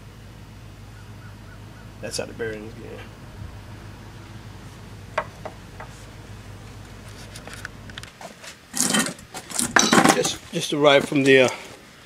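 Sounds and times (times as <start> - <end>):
rustling handling noise: 4.2 - 11.8.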